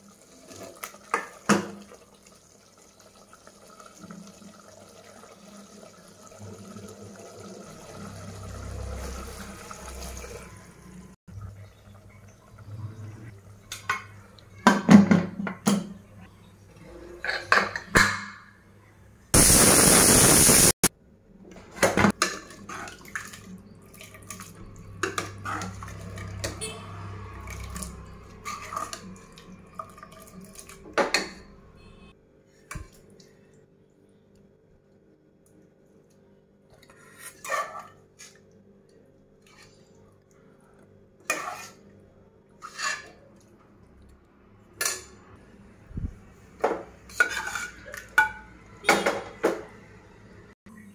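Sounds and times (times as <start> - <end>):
pressure cooker hiss: 19.4 - 20.8
metal ladle scraping pots: 27.4 - 29.2, 41.2 - 41.8, 42.6 - 43.3, 47.0 - 49.0.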